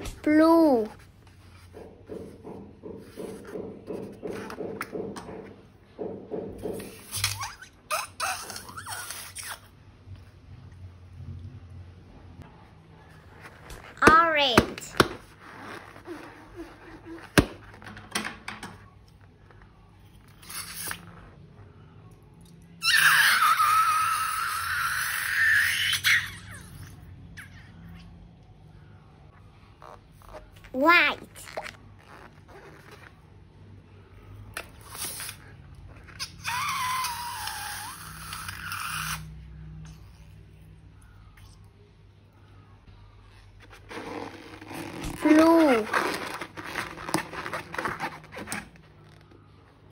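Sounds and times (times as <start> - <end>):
rubber balloon squealing: 7.0 - 9.8, 15.3 - 17.8, 20.4 - 21.3, 22.8 - 26.9, 31.3 - 33.2, 34.9 - 39.3, 43.7 - 49.2
squishy hiss of slime: 34.8 - 35.5.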